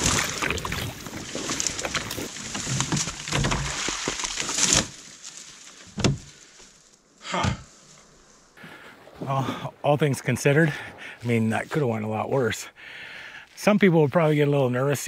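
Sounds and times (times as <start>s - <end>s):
ice crunching and splashing: 0.0s - 6.8s
dry reeds rustling: 0.0s - 9.4s.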